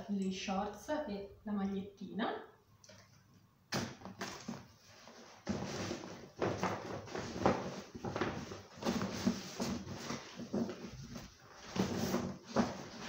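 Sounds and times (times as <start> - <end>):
clothes rustling in shopping bag: 4.9 - 13.0.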